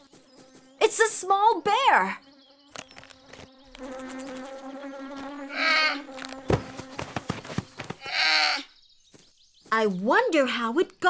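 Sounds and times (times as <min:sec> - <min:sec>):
bear cub bleating cries: 0:05.5 - 0:06.1, 0:08.0 - 0:08.7.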